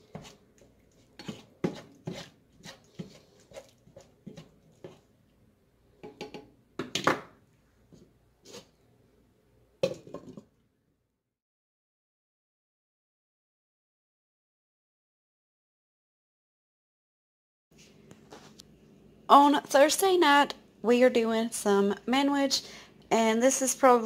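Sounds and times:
spatula scraping a skillet: 0.0s - 5.1s, 8.4s - 8.8s.

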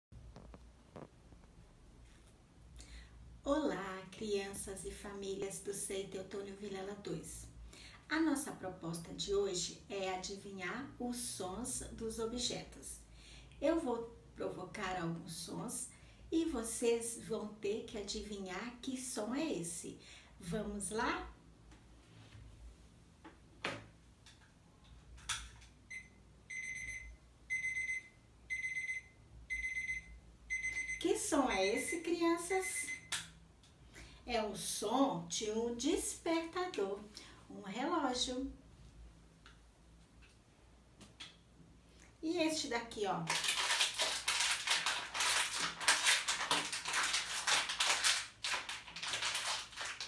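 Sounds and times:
alarm clock beeping: 25.9s - 33.1s
plastic cup crumpling: 43.2s - 50.0s.

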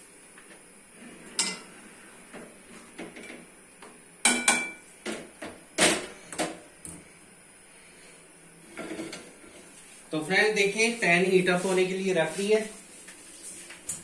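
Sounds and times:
kitchenware knocking and clinking: 4.2s - 5.2s.

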